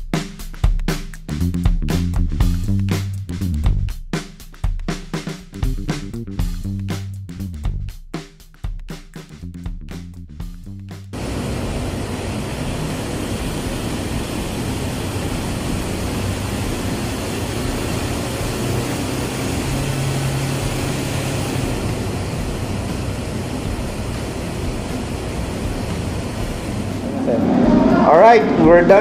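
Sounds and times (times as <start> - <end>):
diesel engine running: 10.0 - 29.0.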